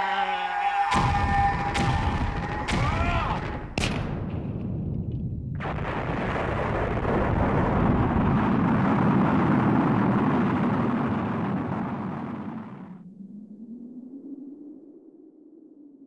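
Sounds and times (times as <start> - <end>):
explosion crack: 0.9 - 12.9
loud explosion rumble: 0.9 - 13.0.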